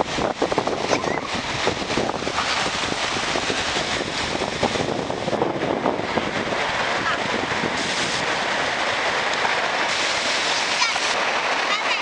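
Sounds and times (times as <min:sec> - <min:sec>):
stream rushing over rocks: 0:00.0 - 0:12.0
splashes of people wading: 0:07.8 - 0:12.0.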